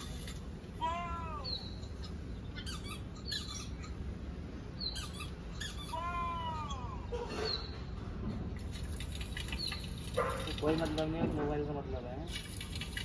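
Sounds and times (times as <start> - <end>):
cat meowing: 0.8 - 1.7, 5.7 - 7.1
short high squeaks or chirps: 1.4 - 4.0, 4.8 - 7.8.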